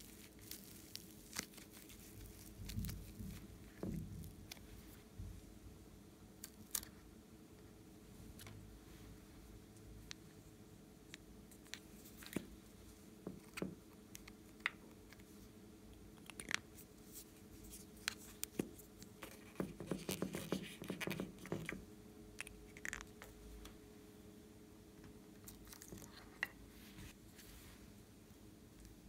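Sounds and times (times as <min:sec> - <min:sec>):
hands handling soft clay: 0:00.0 - 0:05.6, 0:08.2 - 0:21.8
faint steady hum: 0:00.0 - 0:29.0.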